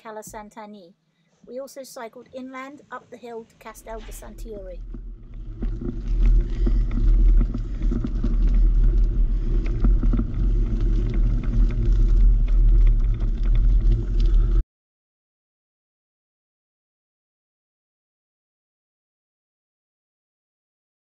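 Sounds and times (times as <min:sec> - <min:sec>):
bicycle tyre noise on dirt: 0:03.7 - 0:14.6
wind rumbling on microphone: 0:03.7 - 0:14.6.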